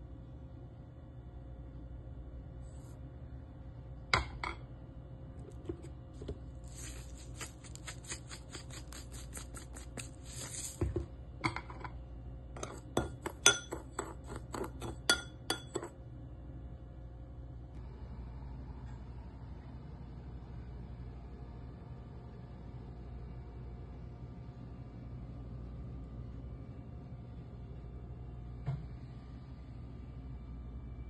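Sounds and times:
seasoning shaken from jar: 0:06.6 - 0:10.8
metal spoon clinking on bowl: 0:12.6 - 0:16.0.

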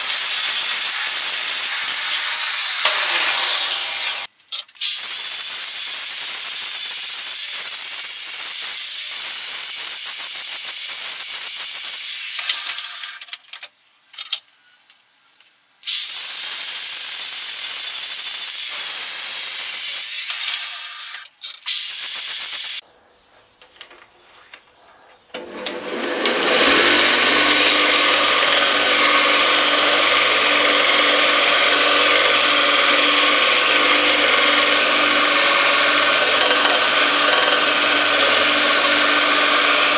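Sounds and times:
belt grinder motor hum: 0:00.0 - 0:04.3, 0:25.4 - 0:39.9
angle grinder grinding steel: 0:00.0 - 0:13.2, 0:25.4 - 0:39.9.

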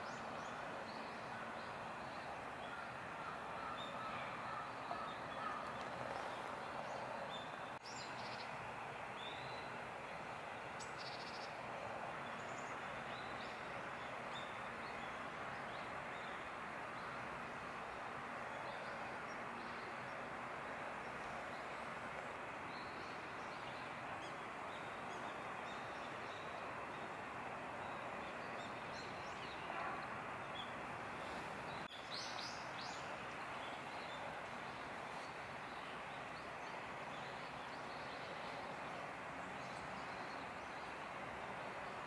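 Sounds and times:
outdoor background hiss: 0:00.0 - 0:42.0.

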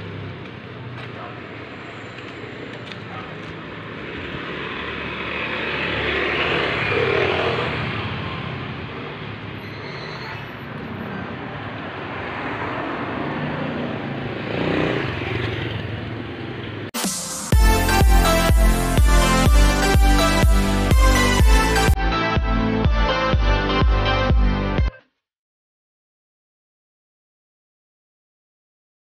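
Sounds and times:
vehicles passing on a road: 0:00.0 - 0:17.0.

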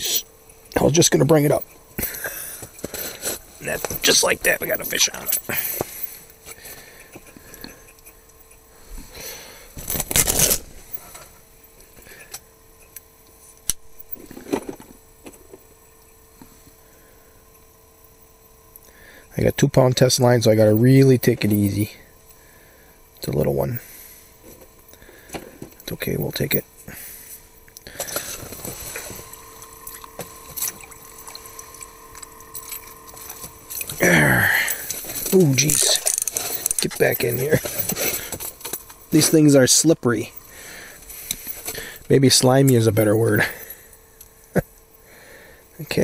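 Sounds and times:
faint steady hum: 0:00.0 - 0:46.0
water sloshing and dripping: 0:29.8 - 0:34.0
fishing reel handling noise: 0:34.9 - 0:38.0.

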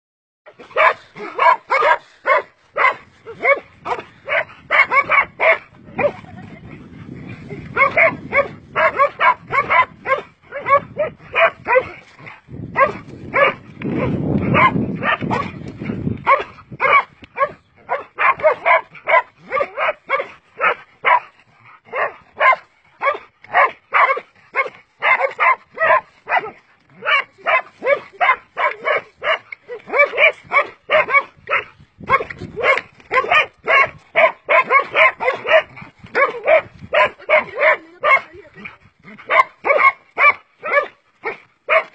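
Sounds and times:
dog barking rapidly: 0:00.6 - 0:06.3, 0:07.7 - 0:15.6, 0:16.2 - 0:21.3, 0:21.9 - 0:38.4, 0:39.2 - 0:41.9.

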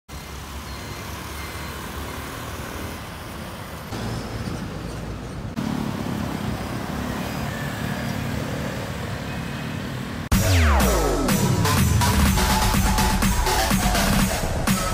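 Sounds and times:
cars and motorcycles passing: 0:00.1 - 0:10.5
electronic music with falling swoops: 0:10.3 - 0:14.9.

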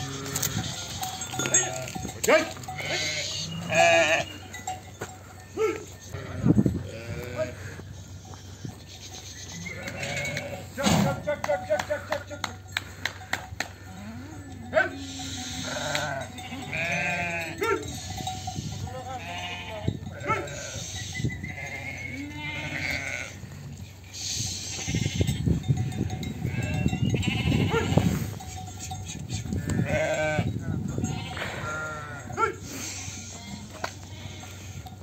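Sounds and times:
sheep bleating: 0:00.0 - 0:04.5, 0:05.6 - 0:08.6, 0:09.5 - 0:10.8, 0:14.0 - 0:23.5, 0:24.6 - 0:28.3, 0:29.6 - 0:34.8
hooves shuffling on dirt: 0:00.0 - 0:35.0.

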